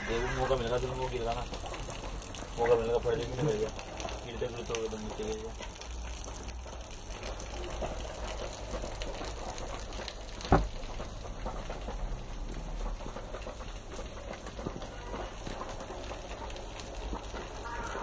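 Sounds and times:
sharp knock: 10.5 - 10.7.

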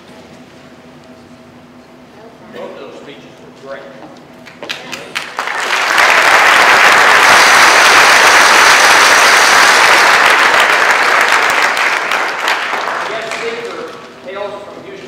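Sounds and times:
audience applauding: 4.6 - 14.1.

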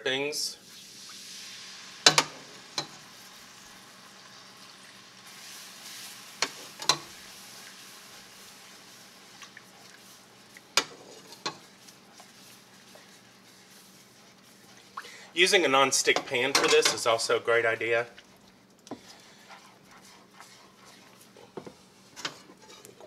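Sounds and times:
roux sizzling in a pan: 0.5 - 23.0
utensils knocking on a pan: 2.0 - 3.0, 6.4 - 7.1.

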